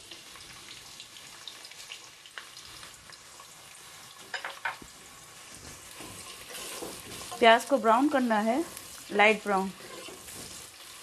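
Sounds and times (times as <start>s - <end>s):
onions sizzling in hot oil: 0.0s - 11.0s.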